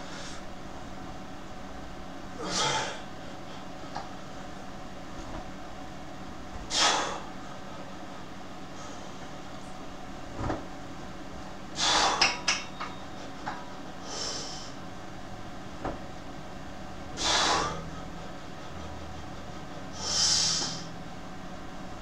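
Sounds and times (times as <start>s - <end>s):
low room hum: 0.0s - 22.0s
forceful breathing of lifter: 11.8s - 12.4s, 17.2s - 18.0s, 19.6s - 20.9s.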